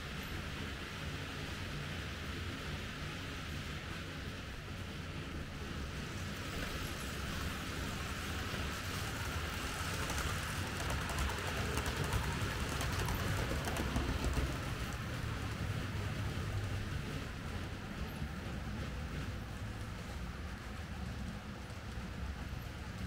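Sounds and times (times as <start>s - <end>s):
model train rolling on track: 0.0s - 23.0s.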